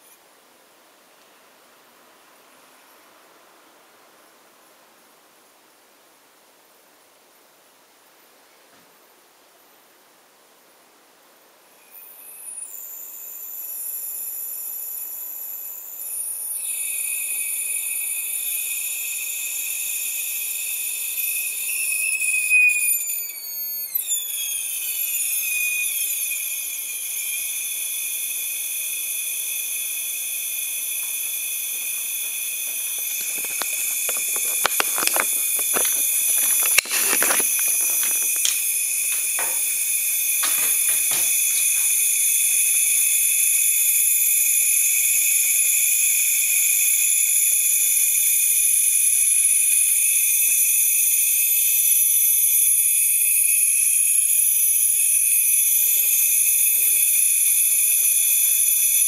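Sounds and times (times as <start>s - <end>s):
electrical hiss: 11.6s - 59.0s
high-pitched electrical whine: 11.7s - 59.0s
sharp electrical crackles: 30.8s - 42.2s.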